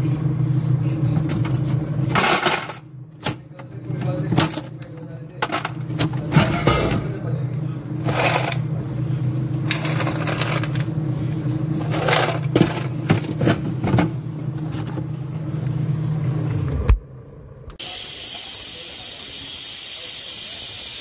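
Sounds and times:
refrigerator humming: 0.0 - 19.5
plastic ice tray scraping: 11.8 - 13.8.

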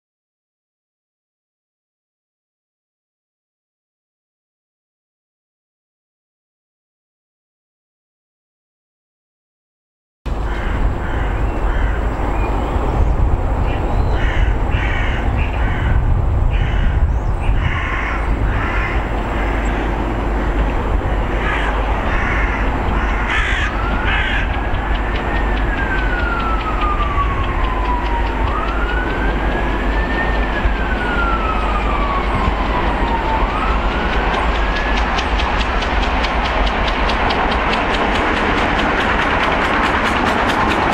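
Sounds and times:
crow-like caws: 10.5 - 12.0, 14.2 - 20.0, 21.4 - 24.6
siren wailing: 18.3 - 36.3.

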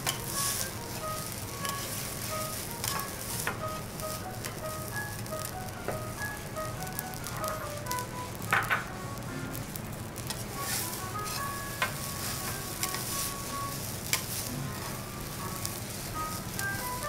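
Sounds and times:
metal spatulas scraping griddle: 0.0 - 3.5, 10.3 - 15.0
food sizzling: 0.0 - 17.0.

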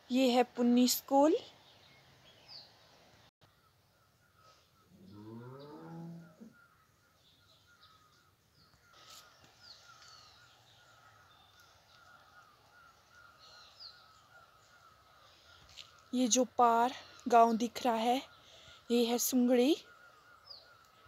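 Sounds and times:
faint high bird chirps: 3.4 - 21.0
cow mooing: 5.0 - 6.6.

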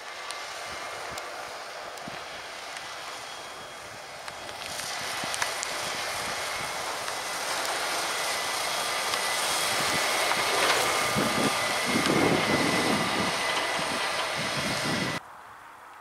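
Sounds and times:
tractor engine under load: 0.0 - 15.2
high whine: 0.0 - 15.3
low gusty rumbling: 3.6 - 15.2.

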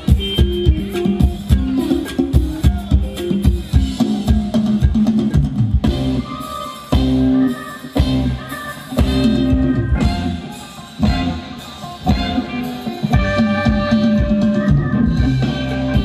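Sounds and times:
drum kit beat: 0.0 - 16.0
live band playing dance music: 0.0 - 16.0.

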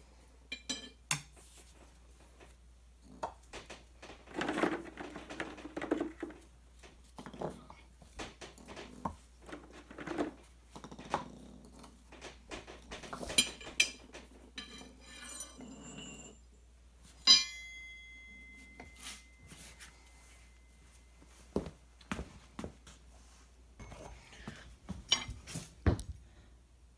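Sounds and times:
tire iron clanging on concrete: 0.5 - 1.3, 17.2 - 19.4
tire iron clinking and scraping: 11.7 - 16.5, 17.2 - 21.1, 23.8 - 25.6.

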